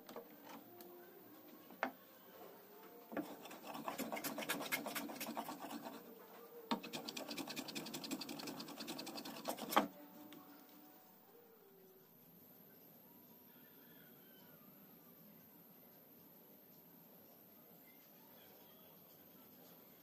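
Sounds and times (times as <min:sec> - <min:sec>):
hand tool scraping wood: 0:03.1 - 0:06.1, 0:06.7 - 0:09.9.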